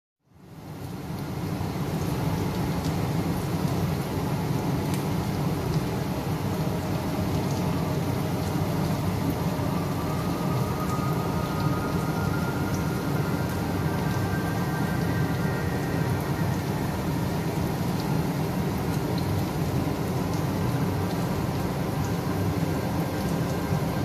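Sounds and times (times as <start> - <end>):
steady low-pitched noise: 4.2 - 24.0
faint sustained tones: 5.8 - 24.0.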